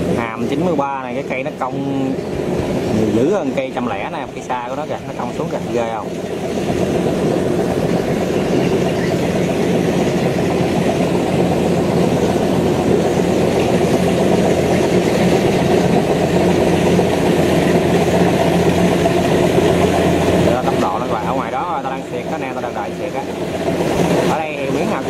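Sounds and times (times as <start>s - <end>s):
combine harvester running: 0.0s - 25.0s.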